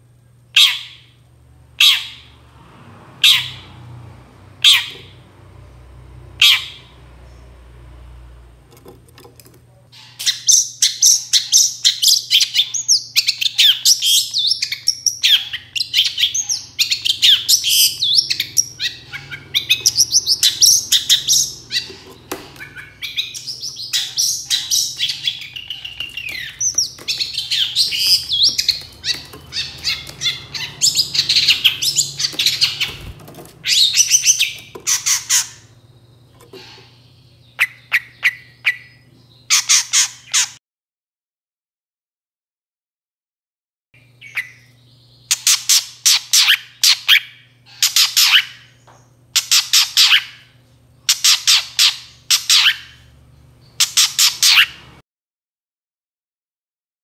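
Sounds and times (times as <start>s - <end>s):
bird singing chattering song: 9.9s - 40.6s, 44.0s - 55.0s.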